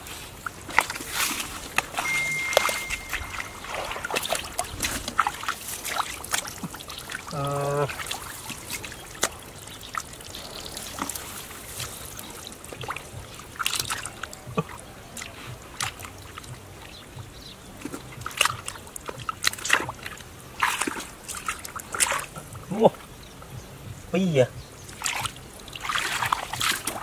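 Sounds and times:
mud squelches: 0.0 - 27.0
muddy water splashing: 0.0 - 27.0.

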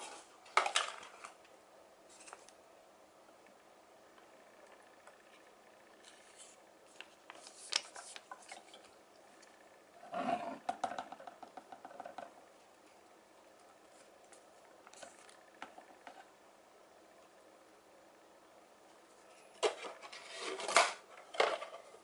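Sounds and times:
plastic clattering and scraping: 0.0 - 1.4, 19.5 - 22.0.

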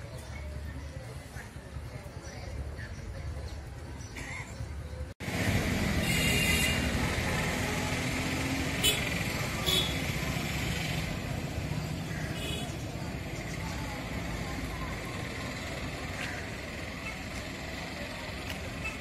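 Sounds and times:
bus engine idling: 5.2 - 19.0
faint voices: 9.2 - 19.0.

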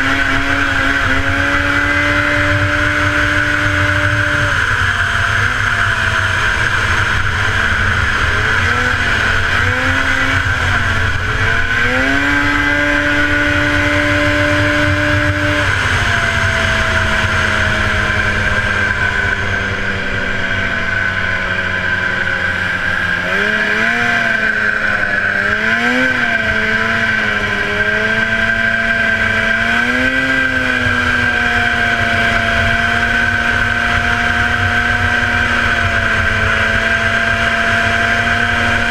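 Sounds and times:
snowmobile engine racing: 0.0 - 38.9.

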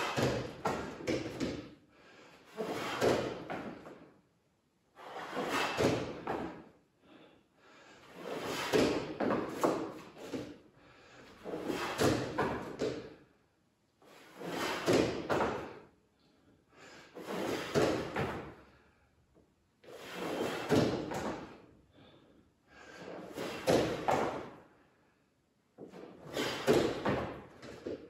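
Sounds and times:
dumbbell exercise knocks and thuds: 0.0 - 1.8, 2.8 - 4.0, 5.5 - 6.7, 8.5 - 10.5, 11.5 - 13.2, 14.5 - 15.8, 17.5 - 18.6, 20.4 - 21.6, 23.3 - 24.5, 26.3 - 28.0.

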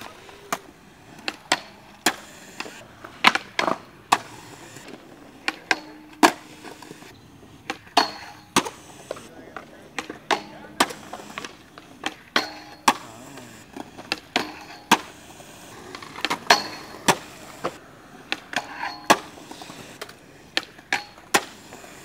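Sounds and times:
skateboard wooden clacks: 0.0 - 22.0
wheels rolling on concrete: 0.0 - 22.0.

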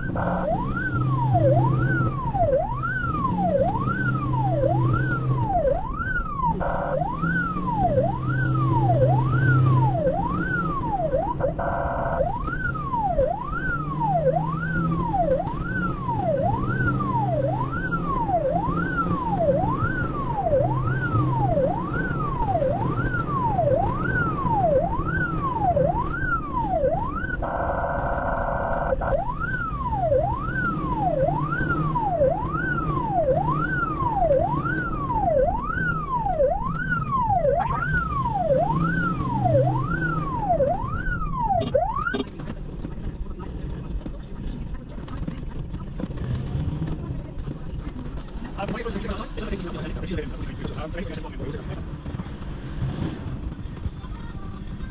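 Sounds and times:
ambulance siren wailing: 0.0 - 42.5
vehicle engine and road noise: 0.0 - 54.9
vehicle horn blasts: 11.6 - 12.2.

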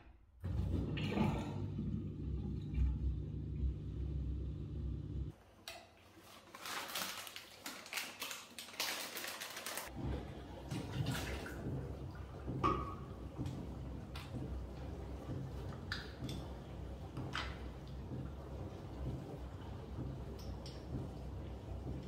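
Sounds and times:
low hum: 0.4 - 5.3
dishwasher running: 0.4 - 5.4, 9.8 - 22.0
water at steel kitchen sink: 0.4 - 22.0
electric kettle hissing and crackling: 1.6 - 5.3.

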